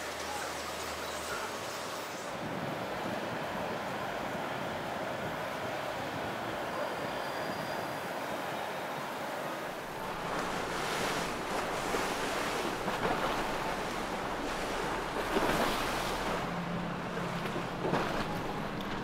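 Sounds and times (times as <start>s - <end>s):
boat engine hum: 0.0s - 19.0s
rushing water: 0.0s - 19.0s
wind buffeting microphone: 9.7s - 19.0s.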